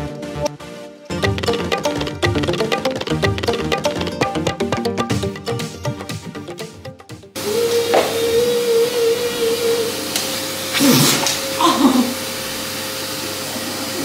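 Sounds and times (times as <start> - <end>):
vacuum cleaner running: 7.4 - 14.0.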